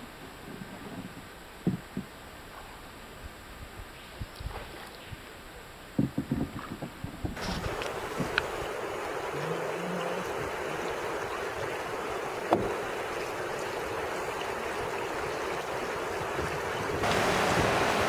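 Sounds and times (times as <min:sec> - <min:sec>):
river water flowing over rocks: 0:07.4 - 0:18.0.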